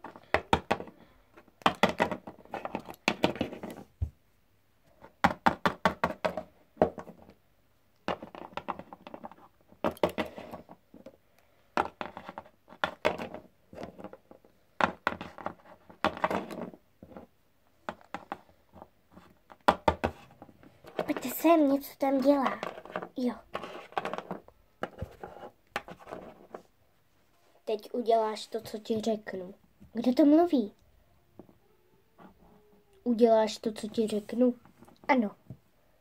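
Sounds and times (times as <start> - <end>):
plastic toys tapping on wood: 0.0 - 4.1, 5.2 - 7.3, 8.0 - 11.1, 11.8 - 17.2, 19.5 - 20.2.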